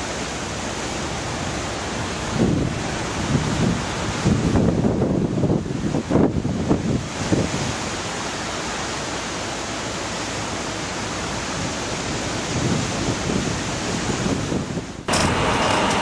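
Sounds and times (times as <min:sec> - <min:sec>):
wind on microphone: 0:01.4 - 0:08.0, 0:11.4 - 0:16.0.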